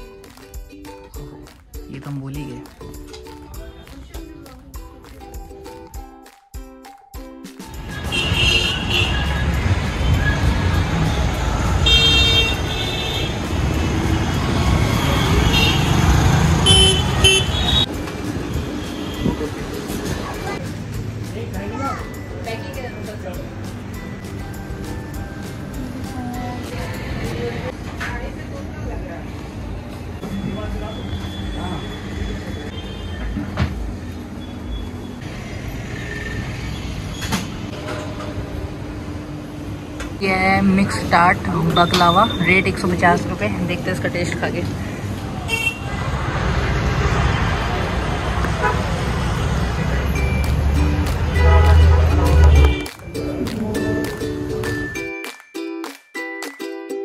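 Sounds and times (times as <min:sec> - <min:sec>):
vehicle horns honking: 0:07.8 - 0:14.0, 0:14.7 - 0:17.9, 0:30.2 - 0:33.4, 0:45.4 - 0:45.9, 0:48.5 - 0:49.0, 0:51.2 - 0:53.0
traffic engine rumble: 0:07.8 - 0:54.8.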